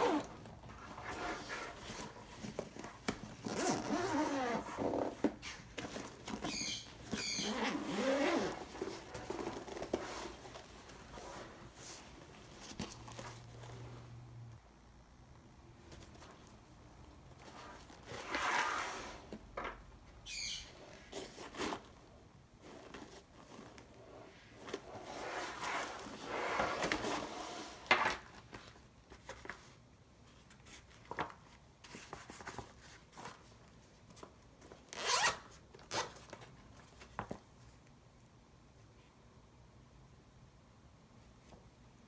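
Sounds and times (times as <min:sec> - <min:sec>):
zipper pulled: 0:00.0 - 0:02.2, 0:03.4 - 0:05.2, 0:07.1 - 0:10.4, 0:17.6 - 0:19.3, 0:34.9 - 0:36.2
backpack fabric rustling: 0:00.0 - 0:13.8, 0:35.0 - 0:35.3.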